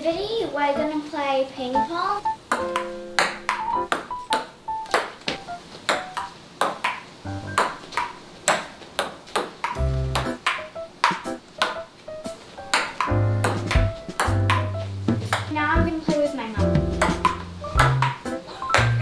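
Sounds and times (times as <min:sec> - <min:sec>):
background music: 0:00.0 - 0:06.3, 0:07.3 - 0:07.7, 0:09.8 - 0:19.0
table tennis ball hits: 0:02.5 - 0:11.8, 0:12.7 - 0:15.6, 0:16.9 - 0:19.0
bass notes: 0:09.8 - 0:10.4, 0:13.1 - 0:18.2, 0:18.8 - 0:19.0.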